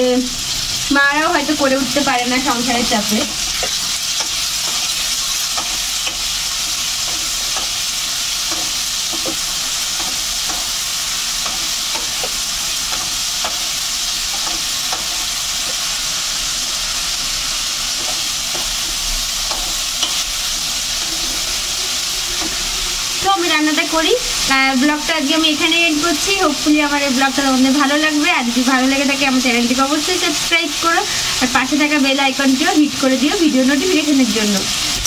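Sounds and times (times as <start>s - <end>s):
potatoes sizzling in oil: 0.0s - 35.0s
spatula scraping and tapping: 3.3s - 15.9s, 17.9s - 21.6s, 22.3s - 22.6s.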